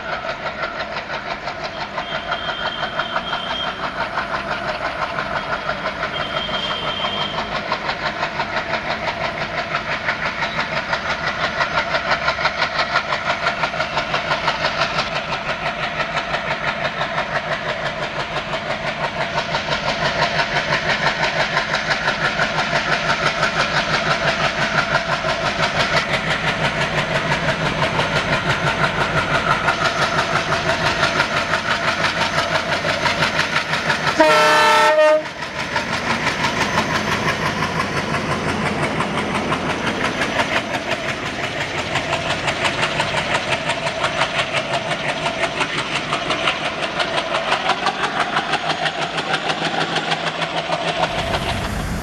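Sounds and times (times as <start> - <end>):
diesel locomotive engine throbbing: 0.0 - 52.0
passenger coaches rolling past: 0.0 - 52.0
locomotive horn blast: 34.2 - 35.3.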